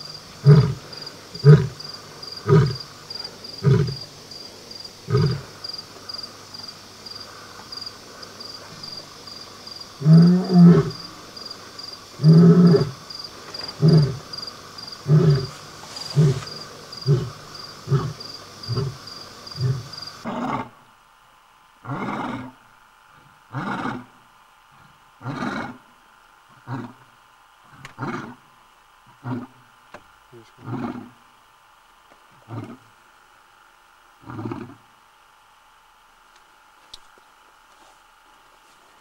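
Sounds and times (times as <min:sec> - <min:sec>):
lion roaring: 0:00.1 - 0:04.1, 0:05.0 - 0:05.6, 0:10.0 - 0:11.2, 0:12.2 - 0:14.3, 0:15.0 - 0:20.8, 0:30.6 - 0:31.2, 0:34.2 - 0:34.8.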